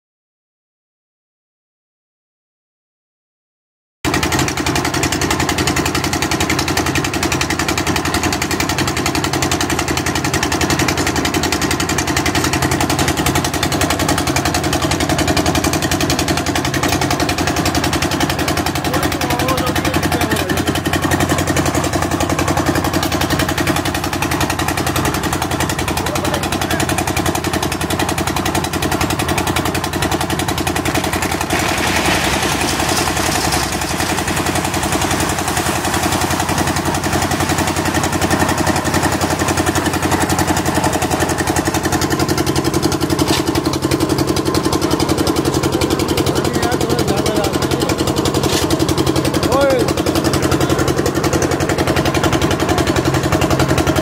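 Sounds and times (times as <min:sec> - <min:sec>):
concrete mixer engine chugging: 0:04.1 - 0:54.0
gravel tumbling into drum: 0:30.8 - 0:41.2.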